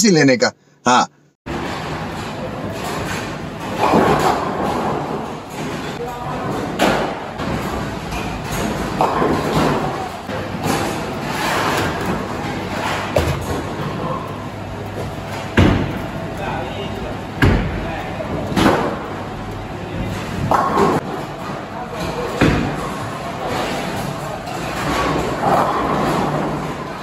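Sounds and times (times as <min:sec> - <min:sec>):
bowling balls thudding into pins: 0:01.5 - 0:14.2, 0:20.1 - 0:27.0
indistinct chatter in echoing hall: 0:16.1 - 0:27.0.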